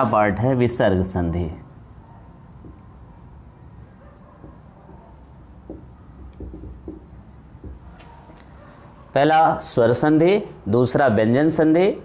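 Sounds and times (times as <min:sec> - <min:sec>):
insect chirping trill: 0:00.0 - 0:12.0
marker writing on whiteboard: 0:02.4 - 0:09.1.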